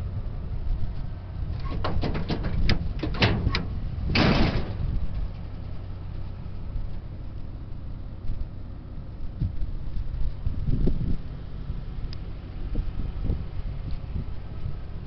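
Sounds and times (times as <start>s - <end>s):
tailgate dropping open: 1.6s - 5.0s
tailgate latch clicks and rattles: 1.6s - 5.0s.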